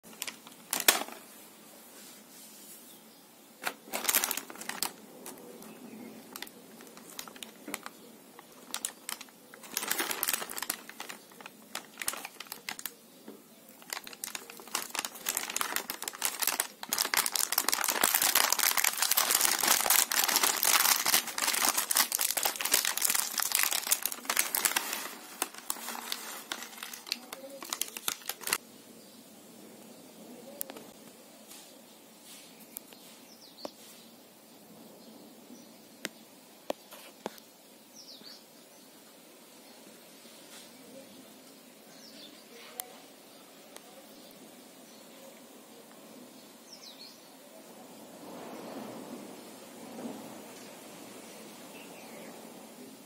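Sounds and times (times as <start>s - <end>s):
plastic snack packet crinkling: 0.0s - 1.2s, 3.6s - 13.0s, 13.7s - 28.6s.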